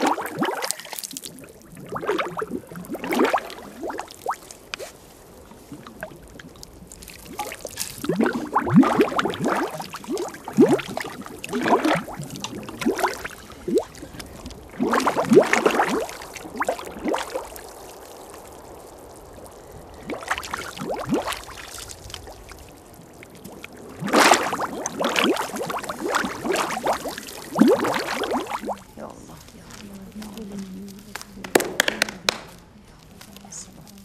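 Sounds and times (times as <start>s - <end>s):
mud pouring from a jug: 0.0s - 34.0s.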